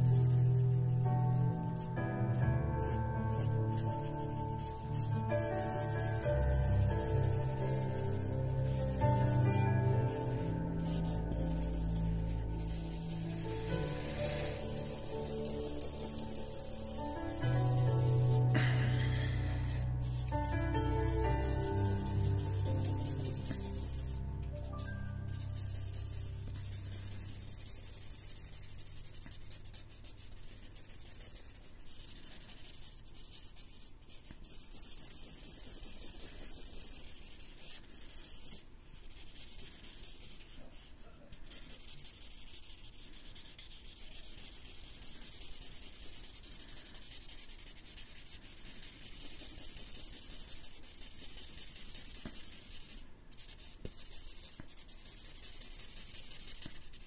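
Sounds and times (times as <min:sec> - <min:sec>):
marker scratching on paper: 0:00.0 - 0:57.0.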